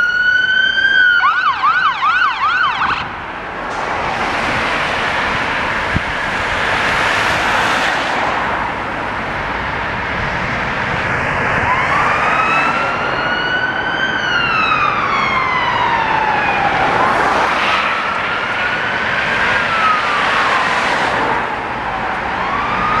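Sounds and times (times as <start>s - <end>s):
fire engine siren wailing: 0.0s - 23.0s
road traffic noise: 0.0s - 23.0s.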